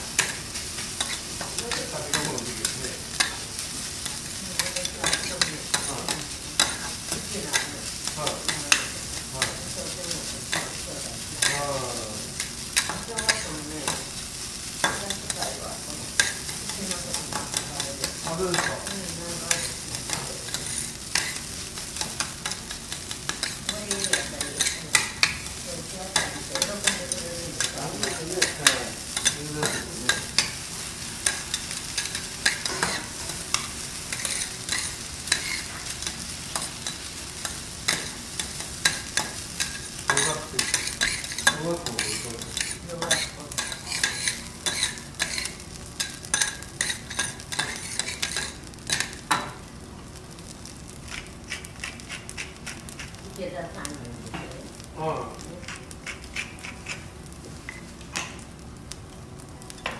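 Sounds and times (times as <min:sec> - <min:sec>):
rice sizzling on hot plate: 0:00.0 - 0:59.9
metal spatulas scraping griddle: 0:38.8 - 0:49.2, 0:51.1 - 0:53.2, 0:55.6 - 0:57.1.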